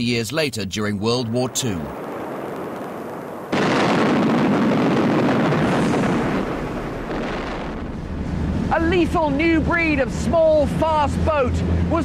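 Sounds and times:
loud explosion rumble: 0:01.3 - 0:10.2.

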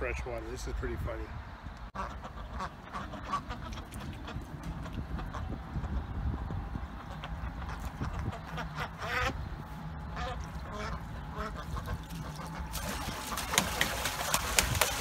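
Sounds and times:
ducks quacking: 0:02.0 - 0:15.0
water splashing: 0:02.9 - 0:05.3, 0:10.2 - 0:15.0.

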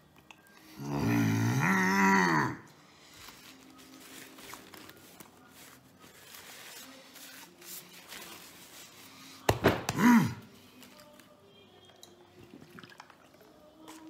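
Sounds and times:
man groaning with pleasure: 0:00.8 - 0:02.7, 0:09.9 - 0:10.5
hands thumping down: 0:09.5 - 0:10.1.

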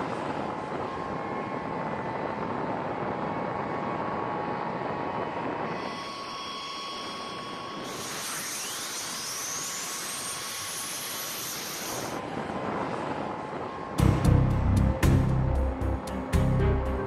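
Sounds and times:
jet engine spooling up: 0:05.6 - 0:12.4
music with heavy beat: 0:14.0 - 0:17.0.

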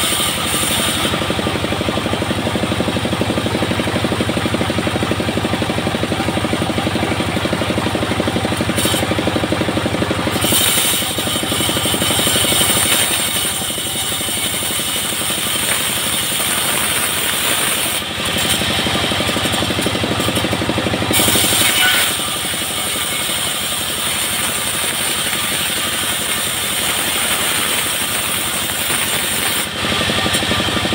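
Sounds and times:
bandsaw mill engine drone: 0:00.0 - 0:30.9
saw blade cutting wood: 0:00.0 - 0:30.9.

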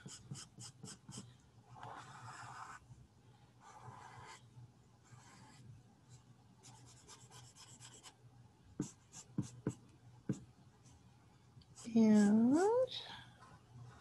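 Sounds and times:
marker scratching on paper: 0:00.0 - 0:02.8, 0:03.6 - 0:04.4, 0:05.1 - 0:05.6, 0:06.6 - 0:08.1, 0:08.8 - 0:10.4.

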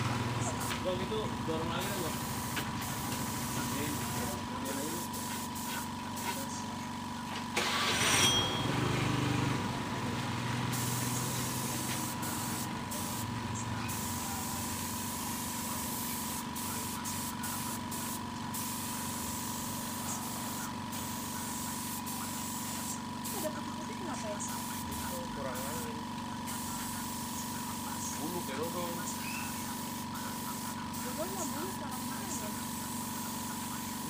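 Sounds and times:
spray gun hissing: 0:01.8 - 0:06.4, 0:10.7 - 0:13.3, 0:13.9 - 0:23.6, 0:28.9 - 0:34.0.

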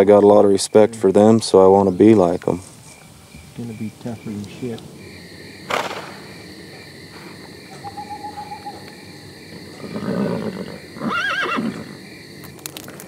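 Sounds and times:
insect chirring: 0:00.0 - 0:13.0
horse neighing: 0:09.6 - 0:12.0.

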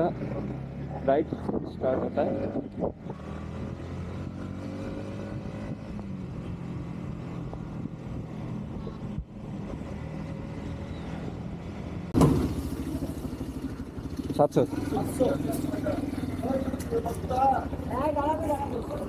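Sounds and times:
motorcycle engine running: 0:00.0 - 0:19.0
motorcycle engines idling: 0:05.6 - 0:19.0.

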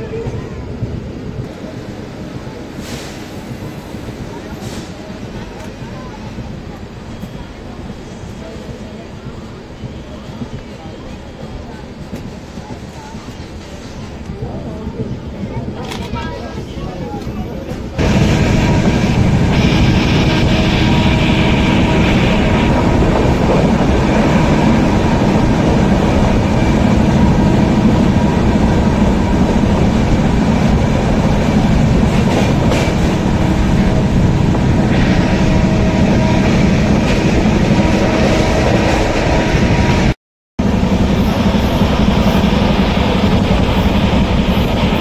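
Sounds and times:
train wheels rumbling on rails: 0:00.0 - 0:45.0
rushing air: 0:01.0 - 0:05.5, 0:18.0 - 0:45.0.

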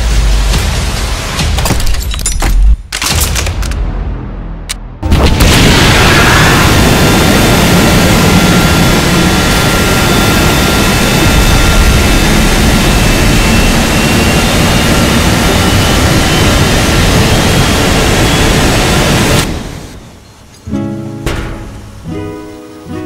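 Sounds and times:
flame jet rushing blast: 0:05.0 - 0:20.0.

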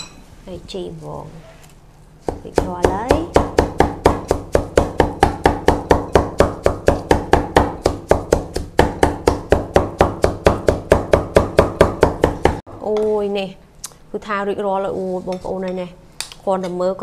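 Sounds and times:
cleaver chopping on wooden board: 0:02.2 - 0:12.6.

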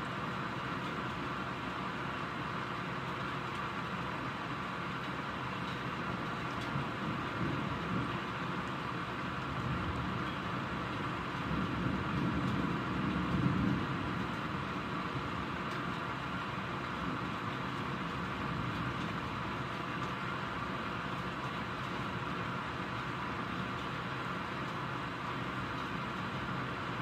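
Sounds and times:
steady rain: 0:00.0 - 0:27.0
low rumble of thunder: 0:06.7 - 0:20.1.

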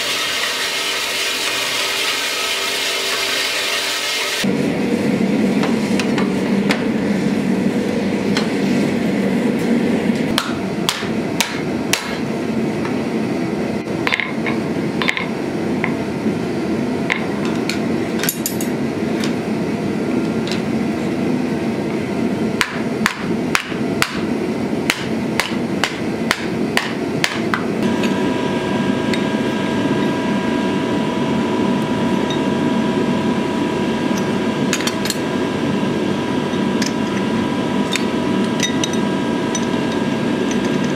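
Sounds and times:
gas forge burner rushing: 0:00.0 - 0:40.9
steady machine hum: 0:00.0 - 0:40.9
hammer striking hot steel on anvil: 0:10.3 - 0:12.3, 0:22.6 - 0:27.6.

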